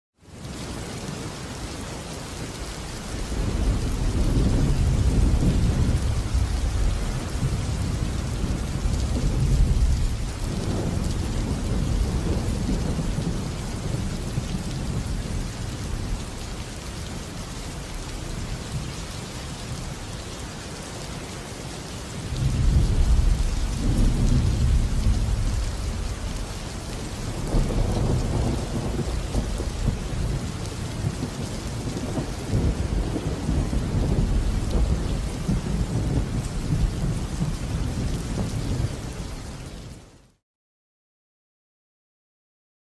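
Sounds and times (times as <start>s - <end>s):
steady rain falling: 0.2s - 40.4s
rolling thunder: 3.3s - 16.4s, 22.2s - 39.1s.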